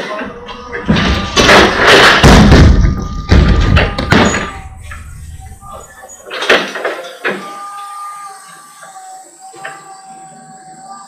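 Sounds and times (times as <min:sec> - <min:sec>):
heavy wooden thuds: 0:00.5 - 0:05.9
crate crashing onto concrete: 0:00.8 - 0:05.1.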